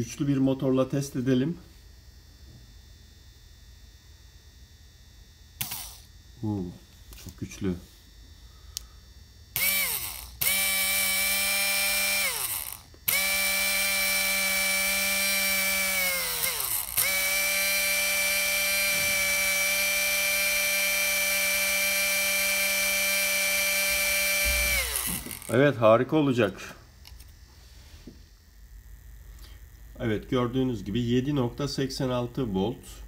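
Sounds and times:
electric motor whining: 5.6s - 6.1s, 9.5s - 25.7s.

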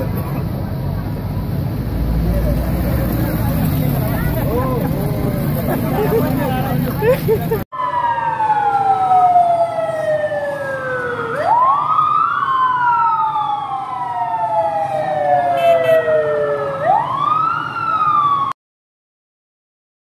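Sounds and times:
traffic rumble: 0.0s - 18.5s
siren wailing: 7.7s - 18.6s.

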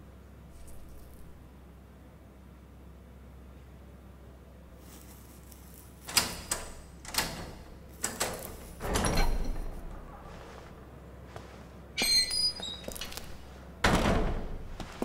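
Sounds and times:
cell door knocks and clunks: 6.1s - 10.0s, 13.8s - 15.0s.

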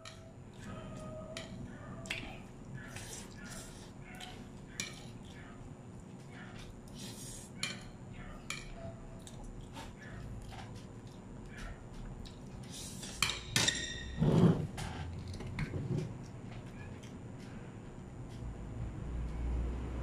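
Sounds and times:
cutlery clinking on plates: 8.5s - 8.8s, 13.0s - 14.5s.

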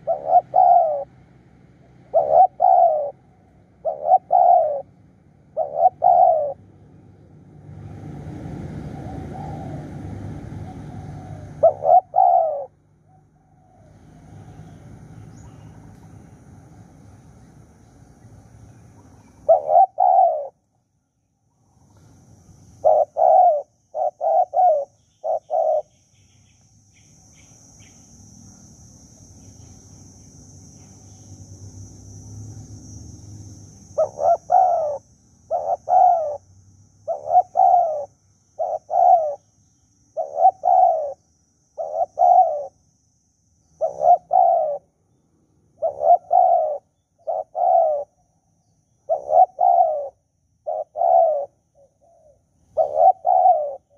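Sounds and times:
dove cooing: 0.0s - 6.7s, 8.6s - 15.8s, 19.0s - 20.6s, 22.8s - 25.9s, 33.9s - 36.4s, 37.0s - 39.5s, 40.1s - 42.8s, 43.8s - 45.0s, 45.8s - 48.2s, 49.0s - 53.9s.

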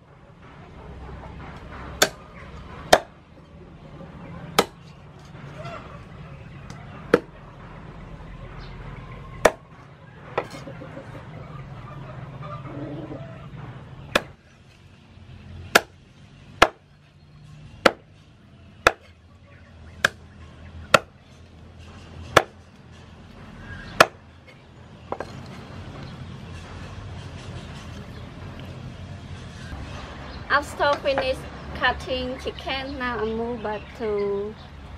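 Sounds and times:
cleaver chopping on wooden board: 2.0s - 2.2s, 2.9s - 3.1s, 4.6s - 4.8s, 7.1s - 7.3s, 14.1s - 14.4s, 15.7s - 16.0s, 16.6s - 16.8s, 17.8s - 18.1s, 18.8s - 19.1s, 20.0s - 20.2s, 20.9s - 21.1s, 22.3s - 22.6s, 24.0s - 24.2s.

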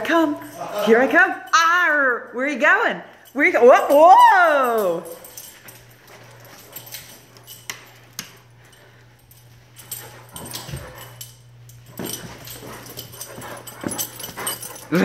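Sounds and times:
steady low hum: 2.2s - 15.0s
dog claws clicking on floor: 3.1s - 15.0s.

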